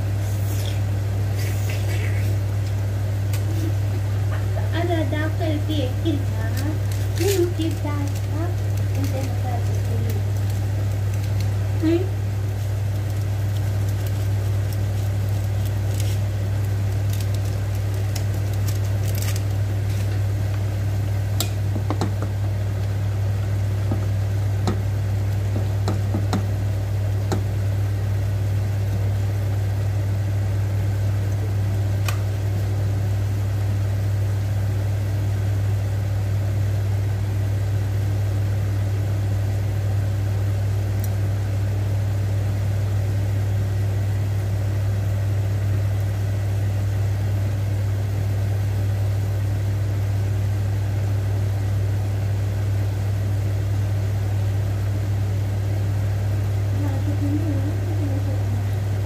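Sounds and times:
pot of water boiling: 0:00.0 - 0:59.0
steady low hum: 0:00.0 - 0:59.0
wooden spoon knocking on pot: 0:25.6 - 0:26.5.

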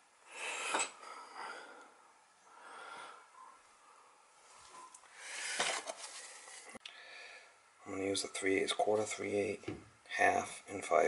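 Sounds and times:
person breathing close: 0:00.3 - 0:04.2, 0:05.1 - 0:07.6.

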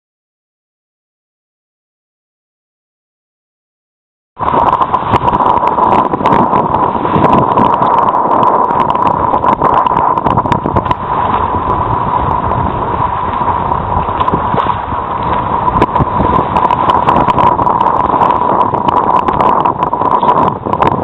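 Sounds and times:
water rushing along hull: 0:04.4 - 0:21.0
wind buffeting microphone: 0:04.4 - 0:21.0
knocks and slaps from waves: 0:04.5 - 0:21.0.

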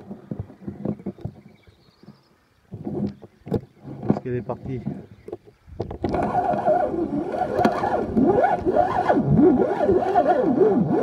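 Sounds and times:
fishing reel gears whining: 0:06.0 - 0:11.0.

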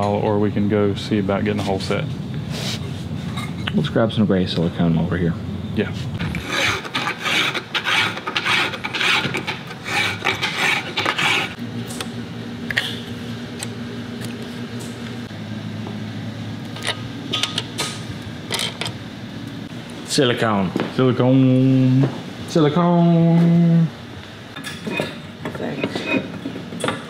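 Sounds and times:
steady low hum: 0:00.0 - 0:27.0
hand file rasping on metal: 0:06.2 - 0:11.6.

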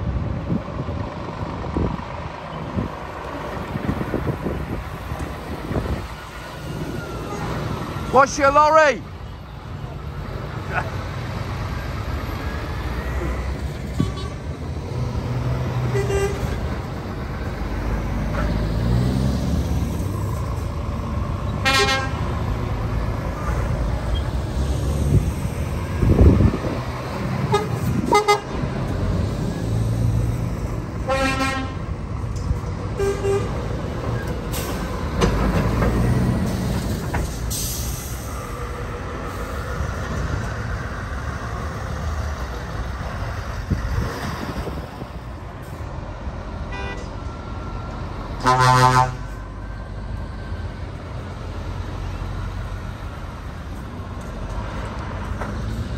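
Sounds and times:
lorry diesel engines: 0:00.0 - 0:55.9
lorry horn toots: 0:21.6 - 0:22.2, 0:31.1 - 0:31.8, 0:48.4 - 0:49.3.

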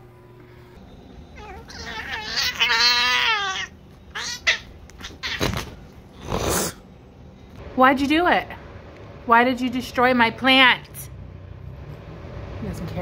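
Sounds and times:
cat yowling: 0:01.4 - 0:05.6.

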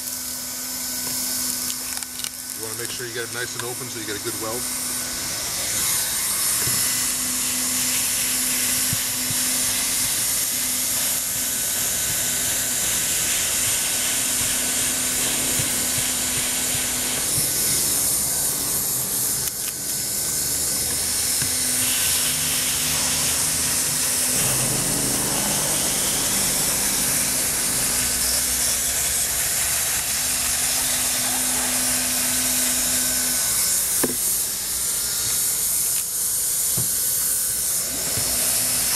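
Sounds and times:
hot-air welder hissing: 0:00.0 - 0:38.9
low hum: 0:11.6 - 0:31.2.

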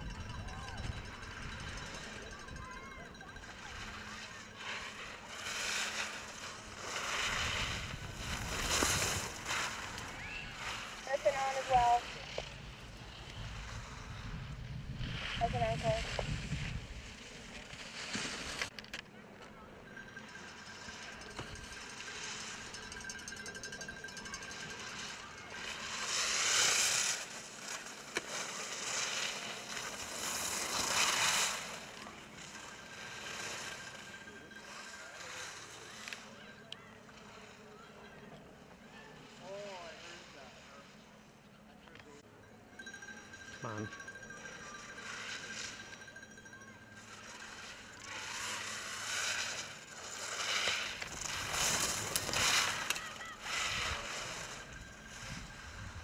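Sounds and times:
skis scraping on hard snow: 0:03.4 - 0:19.0, 0:24.6 - 0:36.3, 0:47.0 - 0:56.0.

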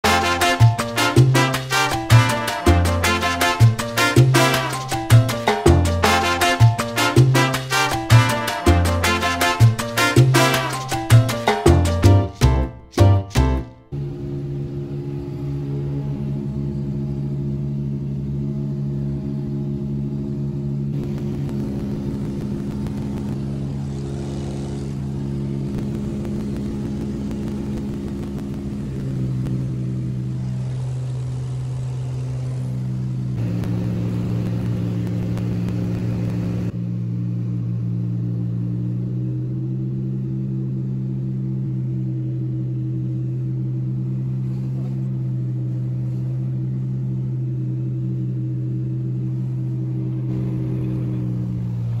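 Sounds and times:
light aircraft engine droning: 0:13.9 - 0:52.0.

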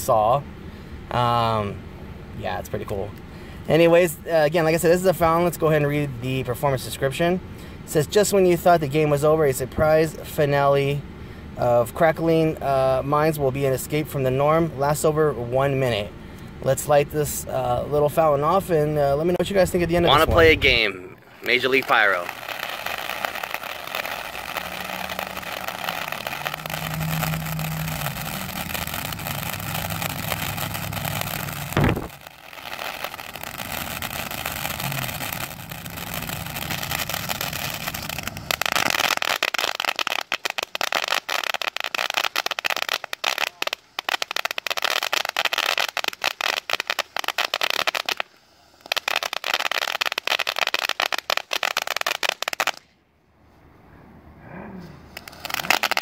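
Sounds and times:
firework fountain hissing: 0:18.4 - 0:52.8, 0:55.1 - 0:56.0
rapid firework crackling: 0:19.2 - 0:52.9, 0:55.1 - 0:56.0
firework pop: 0:21.8 - 0:43.6, 0:55.1 - 0:56.0.

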